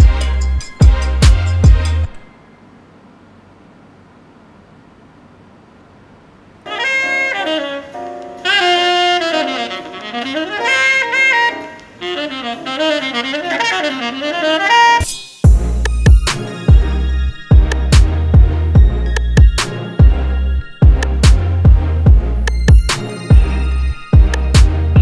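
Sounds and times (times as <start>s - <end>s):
electronic music with heavy bass: 0.0s - 2.3s, 15.0s - 25.0s
jazz saxophone: 0.0s - 2.3s, 6.7s - 25.0s
record groove hiss: 0.0s - 25.0s.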